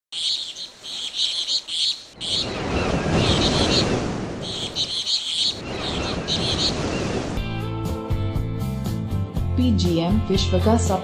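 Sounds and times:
birds chirping: 0:00.1 - 0:07.8
steady rushing noise: 0:02.1 - 0:07.5.

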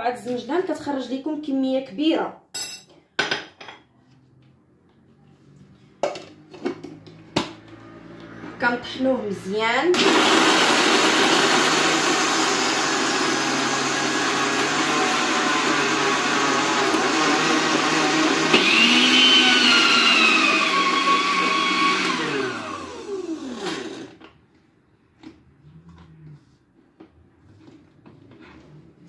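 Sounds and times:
electric grinder motor running: 0:10.0 - 0:24.2.

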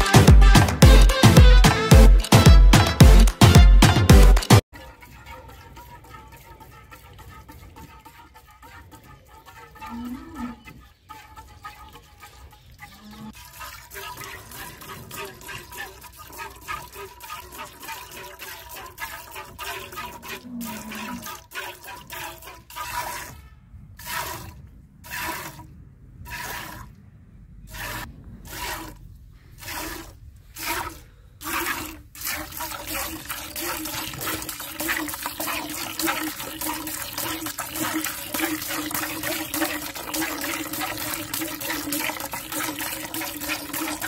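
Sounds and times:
milk squirting into a pail: 0:13.4 - 0:23.4, 0:27.7 - 0:29.0, 0:29.6 - 0:44.0.

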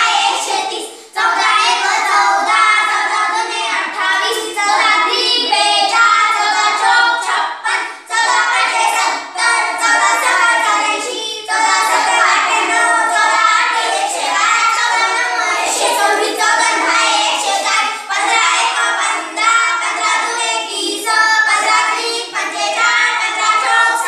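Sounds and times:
children chanting in sing-song: 0:00.0 - 0:24.0.

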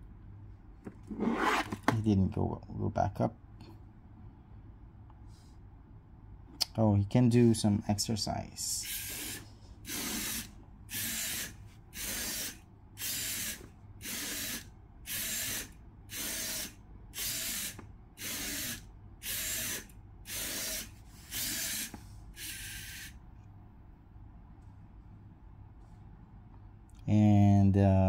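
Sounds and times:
robot servo motors whirring: 0:08.9 - 0:23.1.

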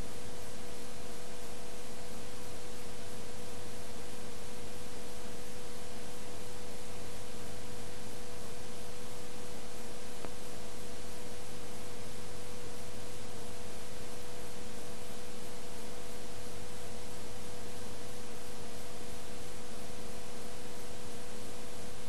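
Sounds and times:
constant hum tone: 0:00.0 - 0:22.0
steady hiss: 0:00.0 - 0:22.0
faint click: 0:10.2 - 0:10.4.

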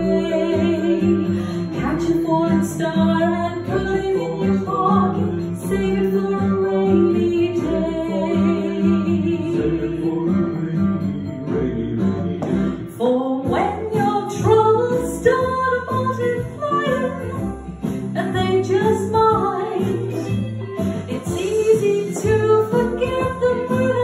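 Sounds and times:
woman singing into microphone: 0:00.0 - 0:10.6, 0:12.9 - 0:17.5, 0:18.2 - 0:24.0
backing track with guitar and beat: 0:10.1 - 0:12.9, 0:15.4 - 0:24.0.

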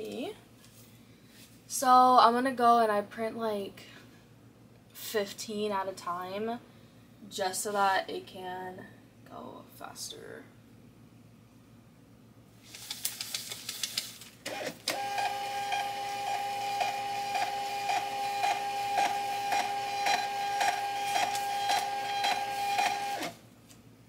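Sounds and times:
label printer printing: 0:14.5 - 0:23.4.

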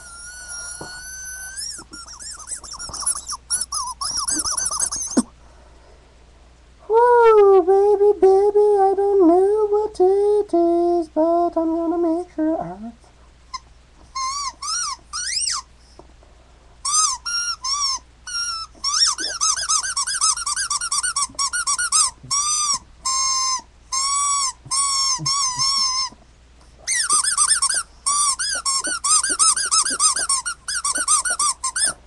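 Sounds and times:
squeaky toy squeaking: 0:00.0 - 0:05.3, 0:13.5 - 0:15.7, 0:16.8 - 0:26.2, 0:26.8 - 0:32.0.

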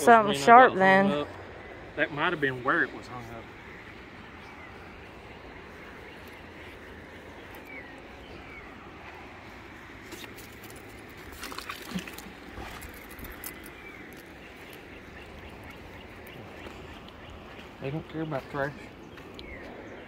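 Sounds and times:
riverside ambience: 0:00.0 - 0:20.0
magnet rattling and splashing: 0:10.0 - 0:14.9.

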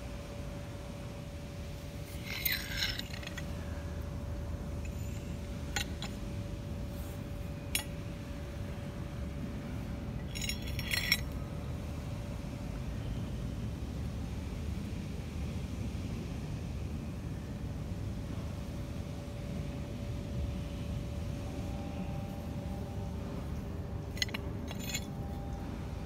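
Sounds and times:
faint hum: 0:00.0 - 0:26.0
metal clamp clinking: 0:02.0 - 0:03.6, 0:04.8 - 0:06.3, 0:07.6 - 0:08.0, 0:10.2 - 0:11.4, 0:24.0 - 0:25.7.

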